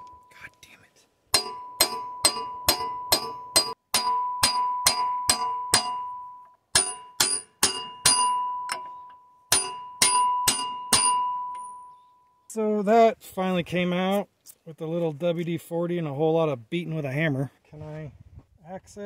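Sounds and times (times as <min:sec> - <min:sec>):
hammer ringing on steel pin: 0:01.3 - 0:12.0.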